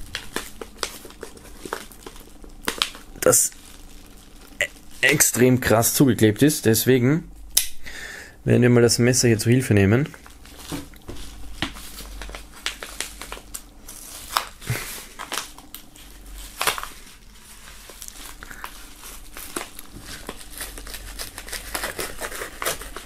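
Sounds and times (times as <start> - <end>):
plastic mailer crinkling: 0.0 - 6.4, 10.0 - 23.0
knife cutting taped seal: 20.6 - 23.0.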